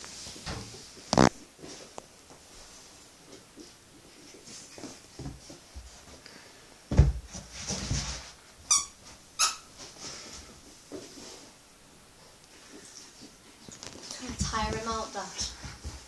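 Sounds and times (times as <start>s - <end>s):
puppy scuffling on carpet: 0.0s - 6.2s, 12.2s - 16.0s
short high squeaks: 8.7s - 9.7s.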